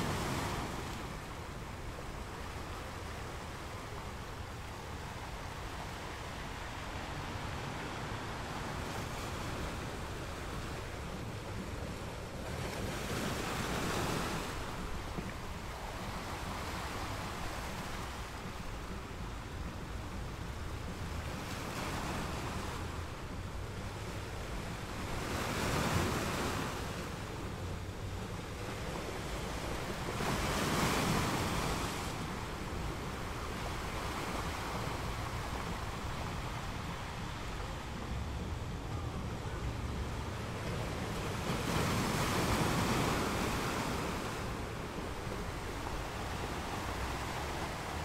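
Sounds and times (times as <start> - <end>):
ocean waves breaking: 0.0 - 48.0.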